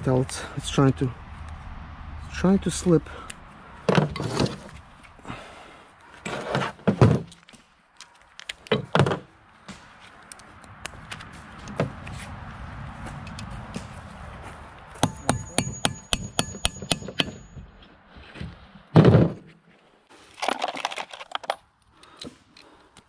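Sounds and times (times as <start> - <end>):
tools and metal parts knocking: 15.0 - 17.6.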